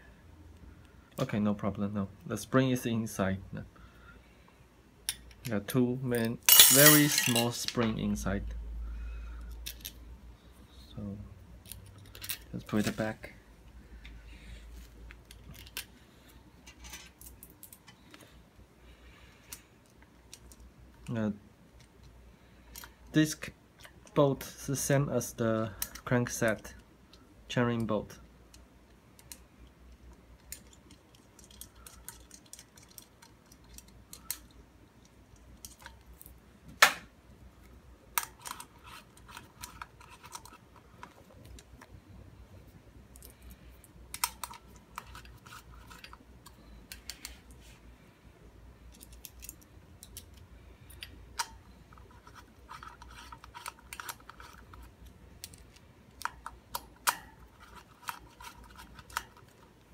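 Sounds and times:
screwdriver metal clicks and scrapes: 0:30.4 - 0:34.6, 0:38.2 - 0:41.6, 0:44.1 - 0:47.6, 0:48.9 - 0:59.7.

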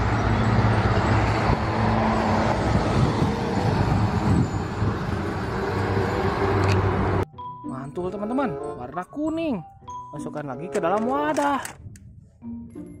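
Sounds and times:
diesel truck engine drone: 0:00.0 - 0:07.3
tyre and road noise: 0:00.0 - 0:07.3.

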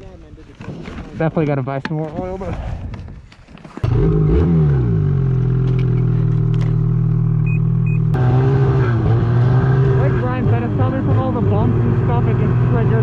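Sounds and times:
snowmobile engine starting and idling: 0:03.8 - 0:13.0
short beeps: 0:07.4 - 0:08.2.

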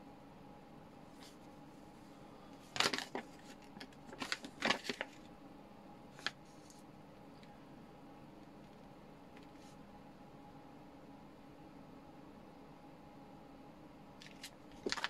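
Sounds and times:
paper rustling: 0:01.1 - 0:01.5, 0:02.6 - 0:05.3, 0:06.1 - 0:06.8, 0:14.2 - 0:15.0.

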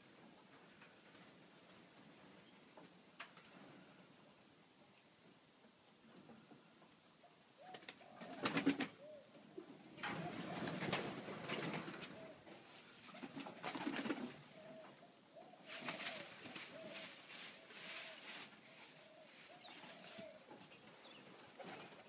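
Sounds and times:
pigeons cooing: 0:07.6 - 0:22.0.

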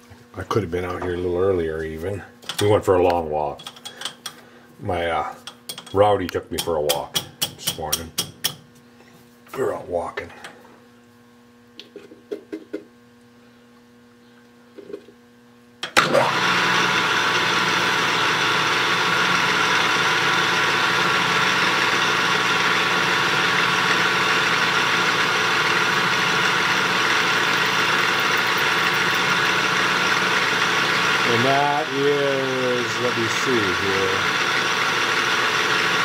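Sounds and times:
drill boring into metal: 0:16.0 - 0:36.0
metal lathe whining: 0:16.0 - 0:36.0.

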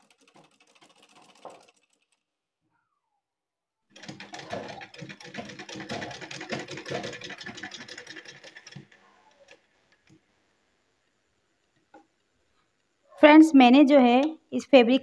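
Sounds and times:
sewing machine clatter: 0:00.0 - 0:02.2, 0:03.9 - 0:10.2.

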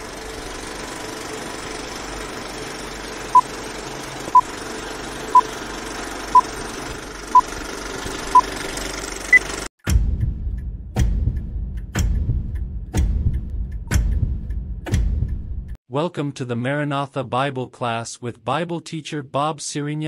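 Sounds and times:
film projector whir and clatter: 0:00.0 - 0:09.7.

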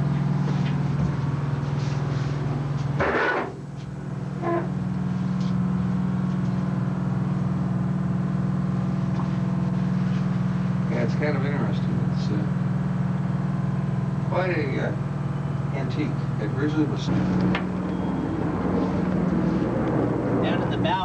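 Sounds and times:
low machinery hum: 0:00.0 - 0:21.0
rustling scrape: 0:18.7 - 0:19.8.

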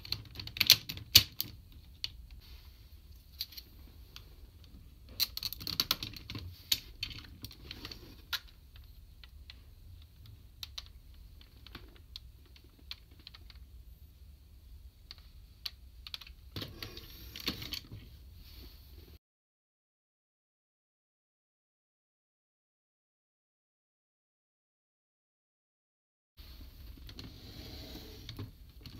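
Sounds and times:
plastic toy parts clicking: 0:00.0 - 0:02.2, 0:05.2 - 0:08.6, 0:09.2 - 0:13.6.

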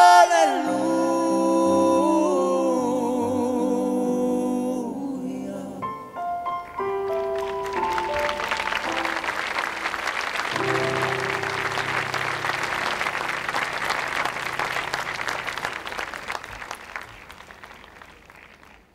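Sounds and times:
live song music: 0:05.8 - 0:18.4
audience applauding: 0:06.6 - 0:18.9.

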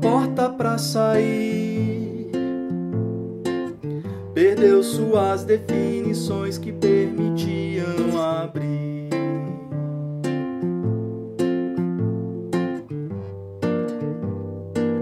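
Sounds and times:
person singing: 0:00.0 - 0:02.7, 0:04.1 - 0:10.0
acoustic guitar playing slow song: 0:00.0 - 0:15.0.

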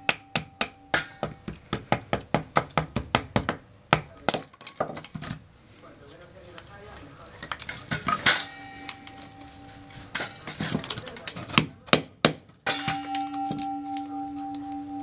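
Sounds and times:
background music steady note: 0:00.0 - 0:01.2, 0:12.9 - 0:15.0.

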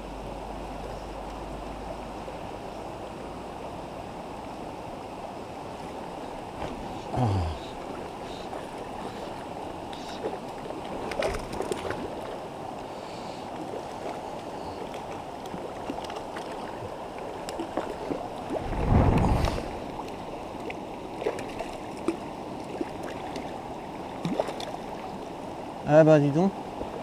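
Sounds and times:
low rumble: 0:18.5 - 0:20.0.

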